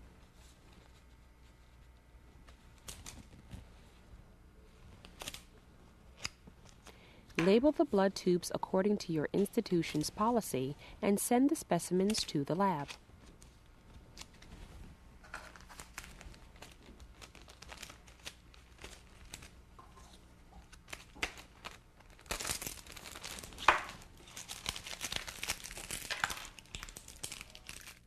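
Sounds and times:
plastic bag crinkling: 0:15.2 - 0:19.6, 0:20.6 - 0:28.0.

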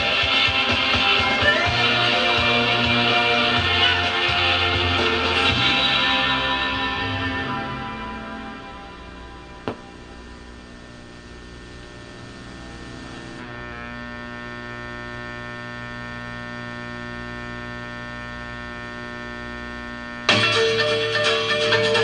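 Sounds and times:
music: 0:00.0 - 0:09.9, 0:20.3 - 0:22.0
steady hum with overtones: 0:00.0 - 0:22.0.

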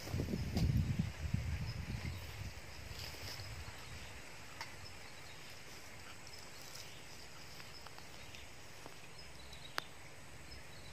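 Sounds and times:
steady hiss: 0:00.0 - 0:10.9
small ticks: 0:06.2 - 0:09.9.

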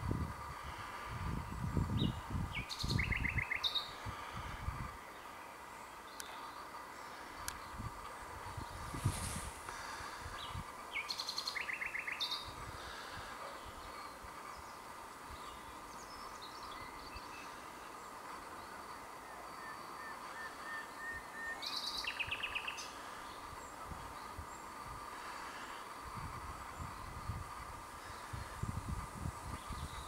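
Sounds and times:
background hiss: 0:00.0 - 0:30.0
nightingale singing: 0:01.4 - 0:04.2, 0:10.4 - 0:12.6, 0:13.4 - 0:24.7.

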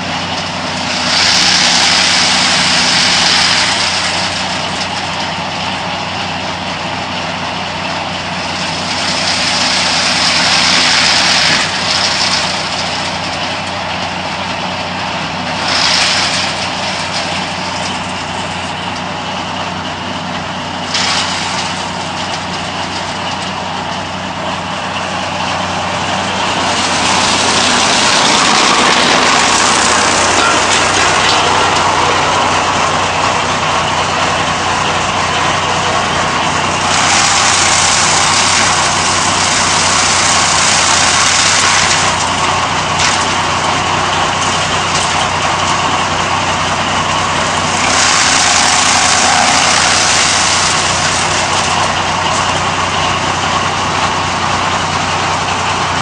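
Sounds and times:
chaff cutter mechanical hum: 0:00.0 - 0:56.0
hissing rush of cut stalks: 0:25.2 - 0:43.5, 0:47.5 - 0:52.6.

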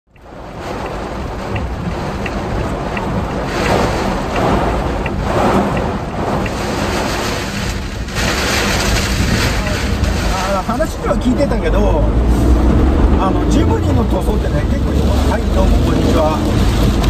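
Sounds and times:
faint light ticks: 0:00.1 - 0:06.6
heavy rain drumming on car roof: 0:00.1 - 0:17.0
road and wind noise: 0:00.1 - 0:17.0.

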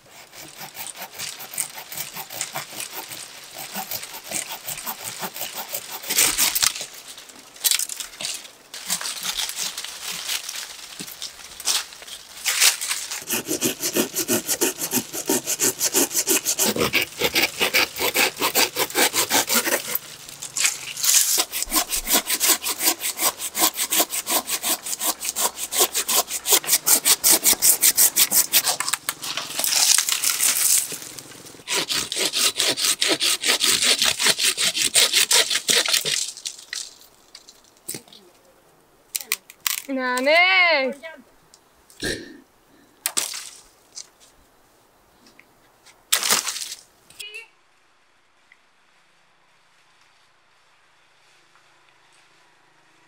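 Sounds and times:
hand saw cutting branch: 0:00.0 - 0:07.0, 0:08.2 - 0:11.8, 0:12.4 - 0:36.3.

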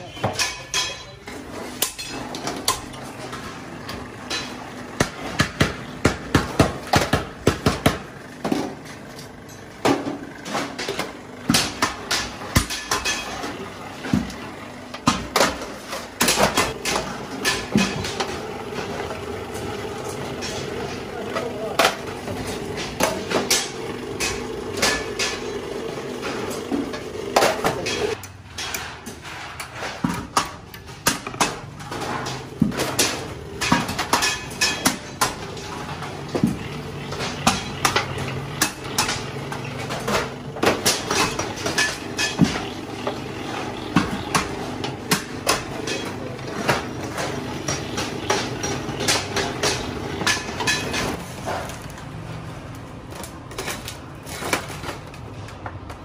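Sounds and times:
machine hum: 0:01.2 - 0:28.3, 0:30.7 - 0:51.2
sheet-metal buckets clanking: 0:15.0 - 0:51.7.

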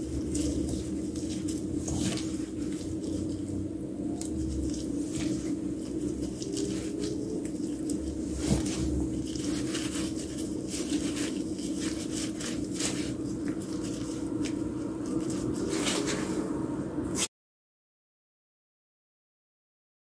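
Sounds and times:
steady low hum: 0:00.0 - 0:17.3.

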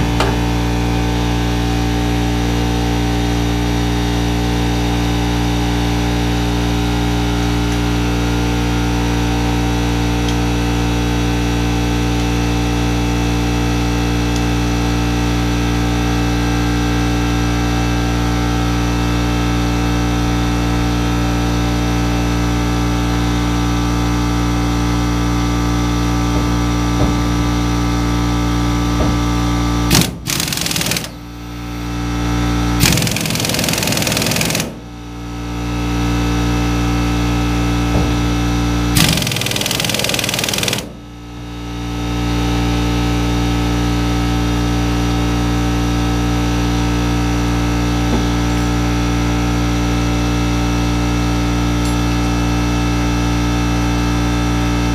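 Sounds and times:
air compressor drone: 0:00.0 - 0:54.9
pneumatic impact wrench: 0:29.1 - 0:31.8, 0:32.8 - 0:34.9, 0:38.9 - 0:41.0.

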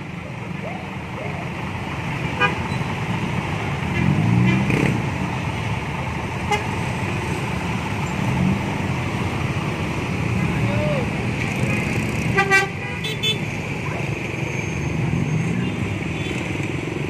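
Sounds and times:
traffic engines running: 0:00.0 - 0:17.0
vehicle horn: 0:12.3 - 0:13.4.

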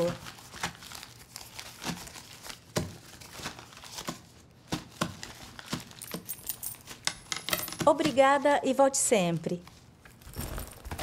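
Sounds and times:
paper bag rustling: 0:10.2 - 0:11.0.

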